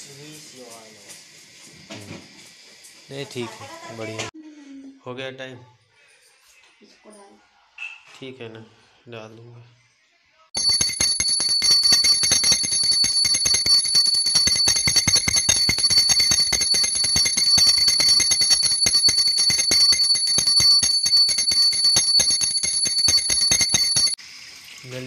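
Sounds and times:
hand bell ringing rapidly: 0:10.6 - 0:24.2.

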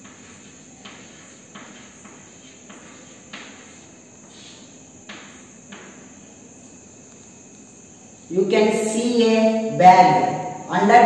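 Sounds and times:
chalk scratching on blackboard: 0:00.0 - 0:04.8
crickets chirring: 0:00.0 - 0:11.0.

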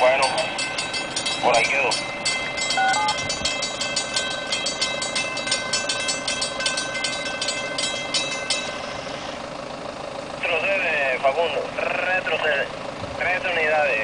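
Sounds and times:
crossing signal bell ringing: 0:00.0 - 0:10.0.

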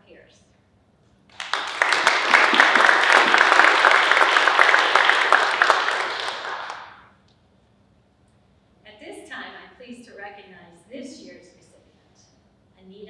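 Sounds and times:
audience applauding: 0:01.3 - 0:07.1.

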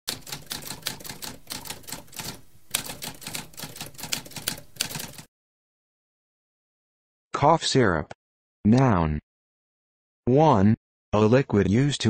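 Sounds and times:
typewriter typing: 0:00.1 - 0:05.3.

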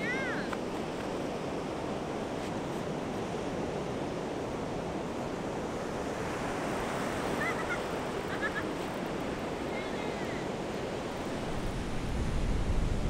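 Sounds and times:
ocean surf breaking: 0:00.0 - 0:13.0
wind buffeting microphone: 0:08.1 - 0:13.0.

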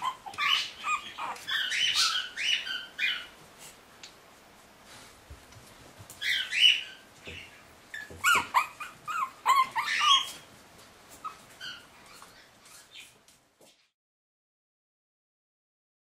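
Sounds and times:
puppies crying: 0:00.0 - 0:03.4, 0:06.2 - 0:10.5, 0:11.1 - 0:13.1.

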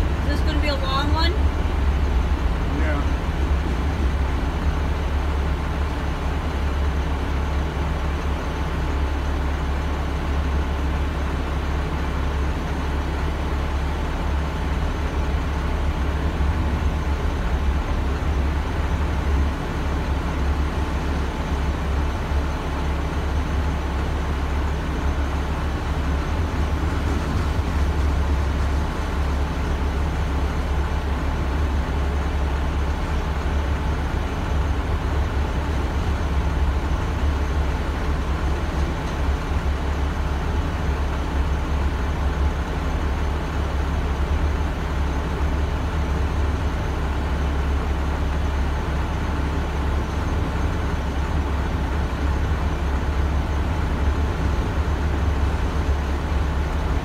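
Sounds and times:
low engine hum: 0:00.0 - 0:57.0
freight train rolling past: 0:25.1 - 0:32.8.

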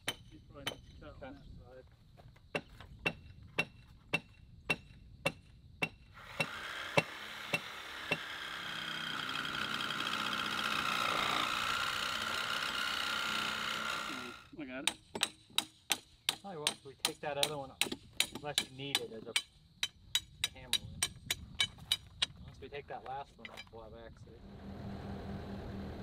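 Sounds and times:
loud steady mechanical noise: 0:06.2 - 0:14.6, 0:24.3 - 0:26.0.

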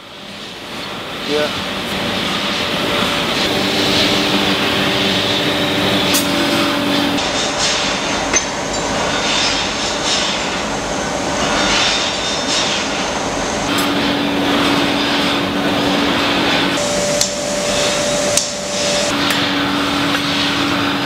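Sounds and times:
machinery roaring: 0:02.6 - 0:07.2, 0:13.7 - 0:19.3.

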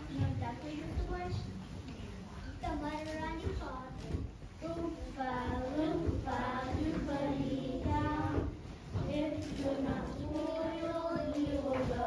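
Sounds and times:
children singing: 0:05.1 - 0:12.0.

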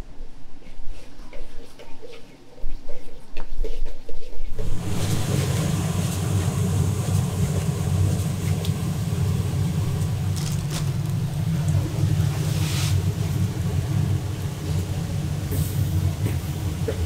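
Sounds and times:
low rumble with hiss: 0:04.4 - 0:17.0.

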